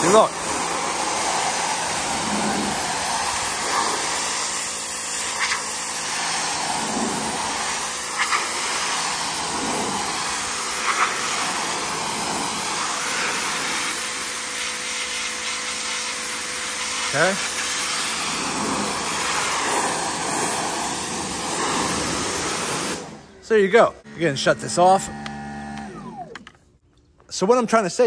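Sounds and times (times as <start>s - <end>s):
pressure washer spraying water: 0.0s - 23.3s.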